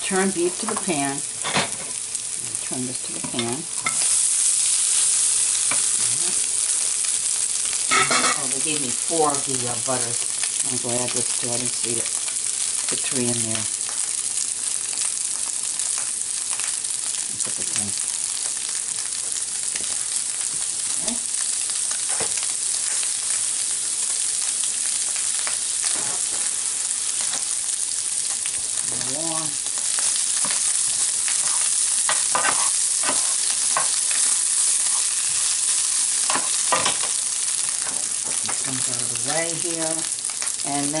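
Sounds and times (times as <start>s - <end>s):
meat and onions sizzling: 0.0s - 41.0s
spoon stirring and scraping: 30.0s - 35.6s.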